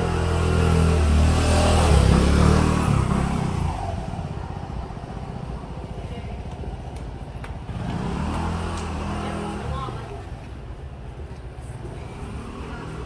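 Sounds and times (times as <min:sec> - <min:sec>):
motorbike engine passing by: 0:00.0 - 0:04.3, 0:07.6 - 0:10.1.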